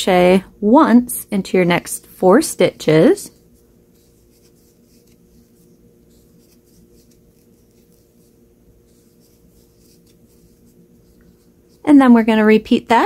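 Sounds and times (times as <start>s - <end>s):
steady low hum: 0.0s - 13.0s
crochet hook scratching yarn: 2.8s - 12.2s.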